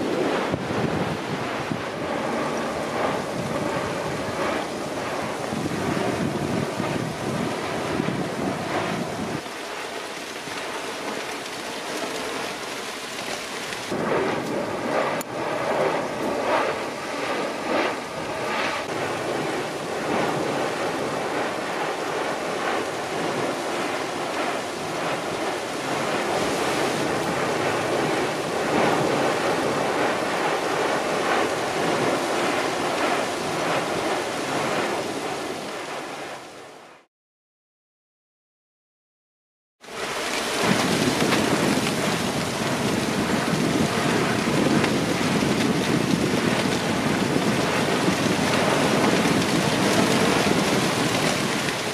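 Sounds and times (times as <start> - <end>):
lava fountain roaring: 0.0 - 36.3, 39.8 - 51.9
bursts of lava spatter: 39.9 - 51.9.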